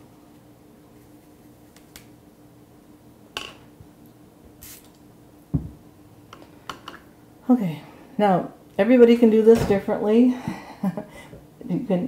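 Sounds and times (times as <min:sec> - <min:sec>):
low steady hum: 0:00.0 - 0:12.0
dull knock: 0:05.6 - 0:05.8.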